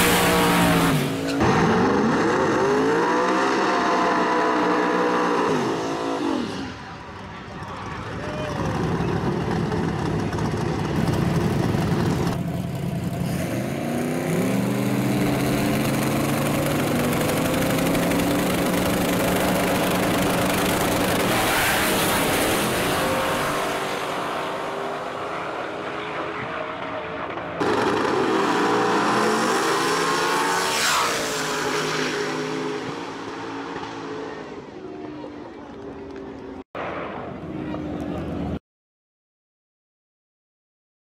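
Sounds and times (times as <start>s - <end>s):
drag racing engines revving: 0.0s - 36.4s
car tyres burnout: 13.1s - 35.2s.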